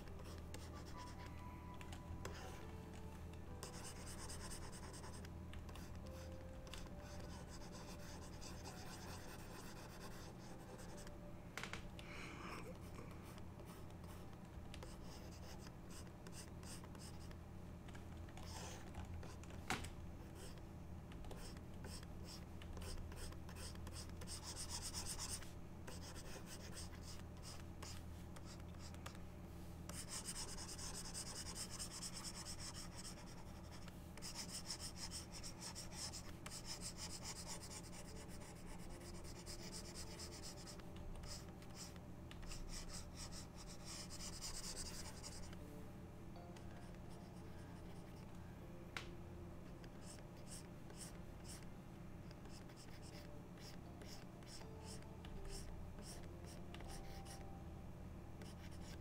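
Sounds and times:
stylus scratching on tablet: 0.0 - 2.7, 3.5 - 11.2, 12.7 - 17.4, 21.2 - 29.2, 29.9 - 45.6, 49.7 - 57.5, 58.4 - 59.0
steady low hum: 0.0 - 59.0.

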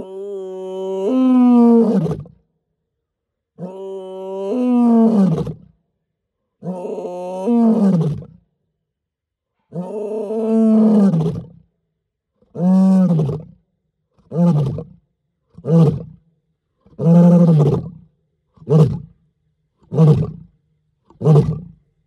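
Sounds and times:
lion roaring: 3.6 - 5.6, 6.6 - 8.4, 9.7 - 11.6, 12.5 - 13.6, 14.2 - 15.0, 15.6 - 16.2, 16.8 - 18.0, 18.6 - 19.2, 19.8 - 20.5, 21.1 - 21.8.

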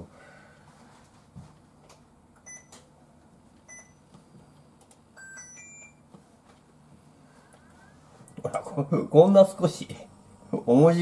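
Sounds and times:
cooktop control panel beeps: 2.4 - 2.8, 3.7 - 4.0, 5.2 - 6.1.

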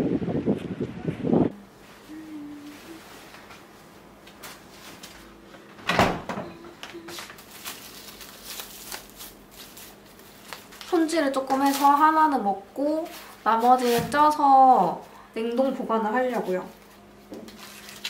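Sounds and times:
refrigerator door thump: 5.8 - 6.6
plastic bags rustling: 7.0 - 14.4, 16.6 - 18.0.

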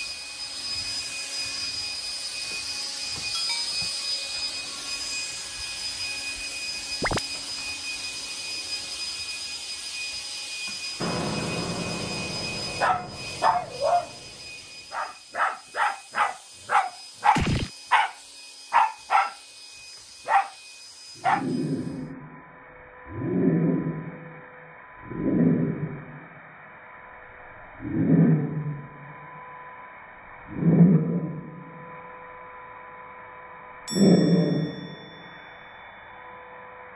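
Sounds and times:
vacuum cleaner whining: 0.0 - 22.7
dog barking: 12.8 - 14.2, 14.9 - 19.4, 20.3 - 20.6, 21.2 - 21.6.

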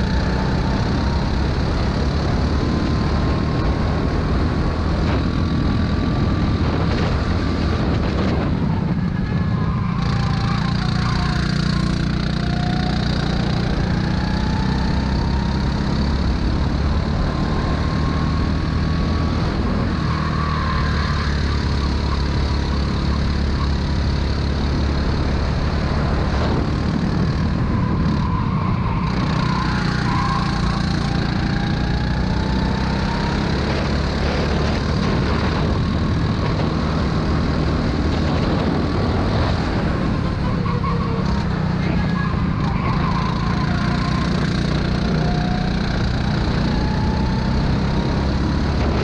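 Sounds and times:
wind rush: 0.0 - 10.6, 24.6 - 31.3, 32.0 - 43.1
go-kart engine running: 0.0 - 49.0.

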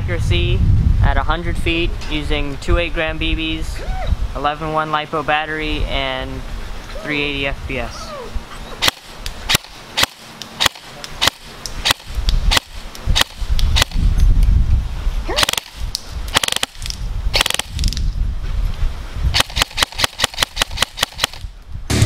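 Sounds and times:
airsoft rifle shots: 8.8 - 14.0, 15.4 - 18.0, 19.3 - 21.5.

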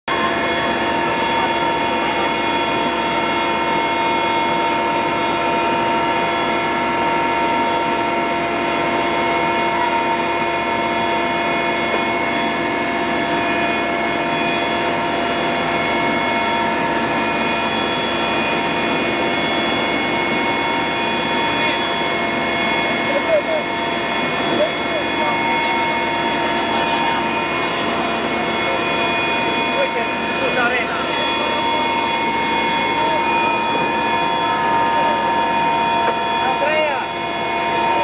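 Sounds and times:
aircraft engine droning: 0.1 - 38.0.

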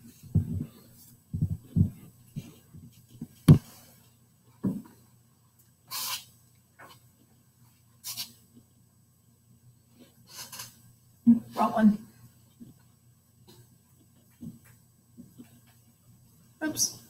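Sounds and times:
short hisses: 5.9 - 6.3.

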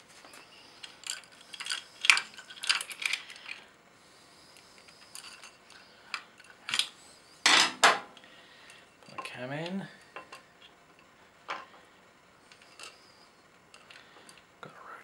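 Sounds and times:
chain links rattling: 0.9 - 3.6.

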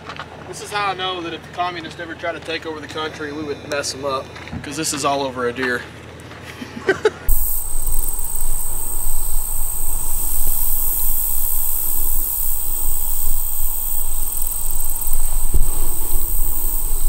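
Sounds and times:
insect chorus: 7.3 - 17.0
wind buffeting microphone: 7.3 - 17.0.

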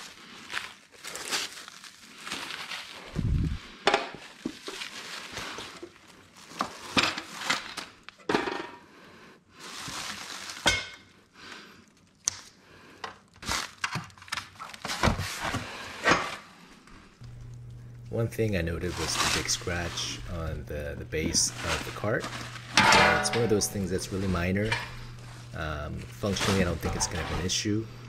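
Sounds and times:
plastic wrap and cardboard crinkling: 0.0 - 8.2, 9.4 - 12.6, 13.2 - 16.0, 16.7 - 27.9
metal parts knocking and clinking: 22.8 - 23.8.

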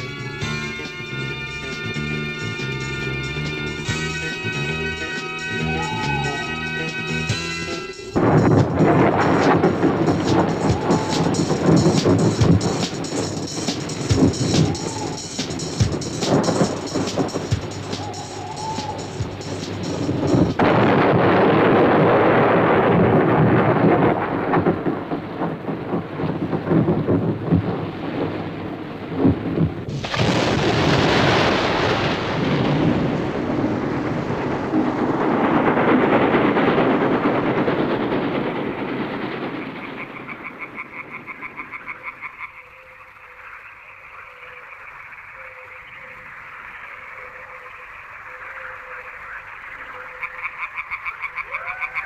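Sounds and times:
rumbling crackling noise: 0.0 - 52.0
frogs croaking: 0.4 - 20.6, 38.1 - 52.0
loud crash: 7.6 - 25.0, 29.9 - 41.1.

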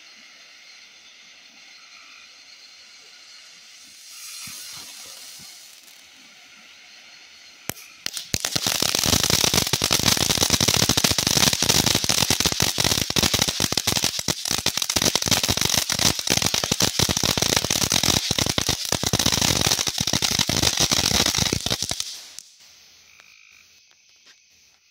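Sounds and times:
firework fountain crackling: 3.2 - 22.6.

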